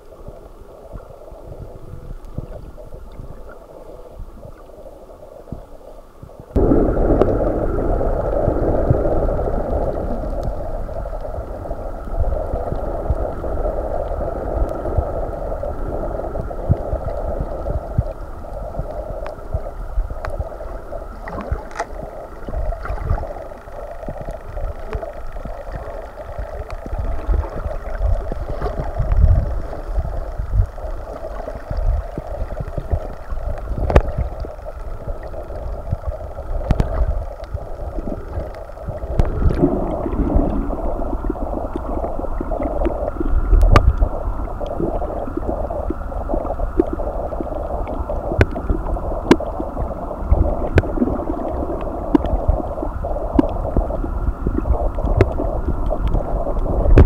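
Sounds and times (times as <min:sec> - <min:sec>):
low gurgling surges: 0:00.0 - 0:57.0
muffled underwater rush: 0:00.0 - 0:57.0
sharp underwater clicks: 0:21.2 - 0:40.8, 0:41.7 - 0:45.1, 0:45.8 - 0:57.0.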